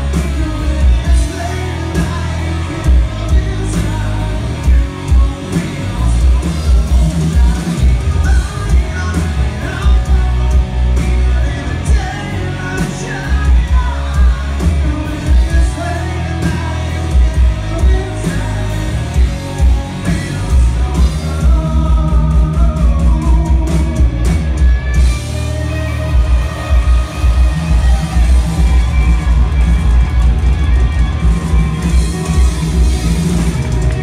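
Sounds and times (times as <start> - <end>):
person singing: 0.0 - 24.0
drum kit: 0.0 - 34.0
electric guitar: 0.0 - 34.0.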